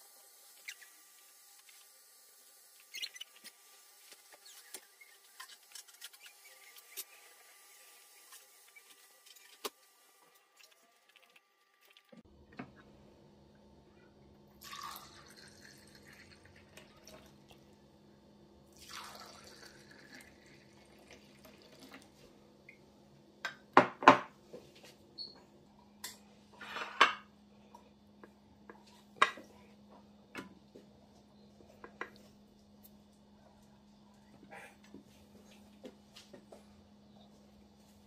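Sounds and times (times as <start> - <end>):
faint steady hum: 0.0 - 38.0
drink pouring into glass: 14.6 - 17.3, 18.8 - 22.0.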